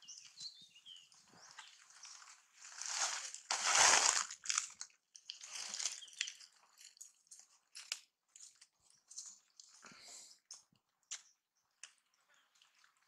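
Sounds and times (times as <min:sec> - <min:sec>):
dry leaves crunching: 0:01.9 - 0:06.4.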